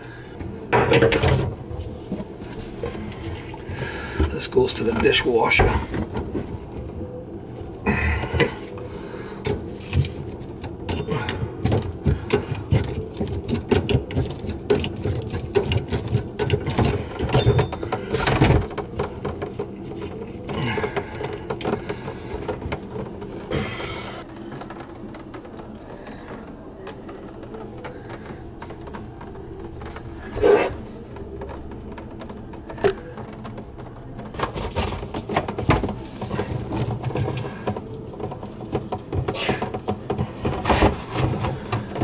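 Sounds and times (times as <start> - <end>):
low steady hum: 0.0 - 42.0
metal plumbing fittings rattling: 9.4 - 24.0.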